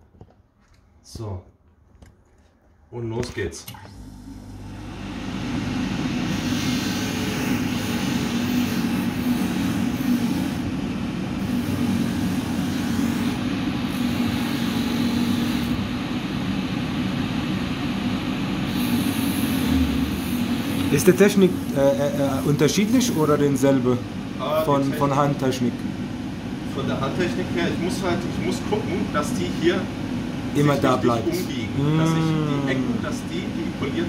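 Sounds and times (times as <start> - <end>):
polishing machine motor hum: 4.0 - 10.8, 11.4 - 15.8, 18.6 - 23.5.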